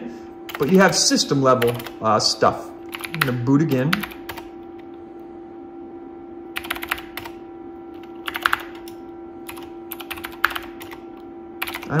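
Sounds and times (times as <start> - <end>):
steady hum: 0.0 - 12.0
keyboard typing: 0.5 - 2.0, 2.8 - 5.0, 6.5 - 12.0.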